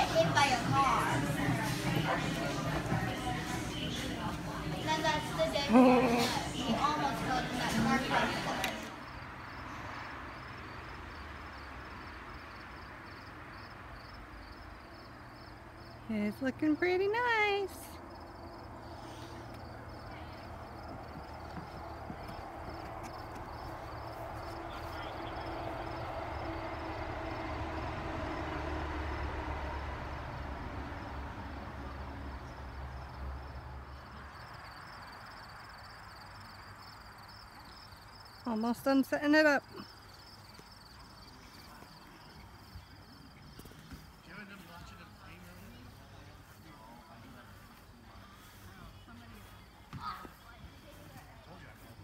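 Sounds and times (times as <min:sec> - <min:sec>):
low engine-like rumble: 0:00.0 - 0:09.9, 0:17.9 - 0:35.8
outdoor background hiss: 0:00.0 - 0:52.0
cricket chirping: 0:08.1 - 0:16.1, 0:18.0 - 0:46.9.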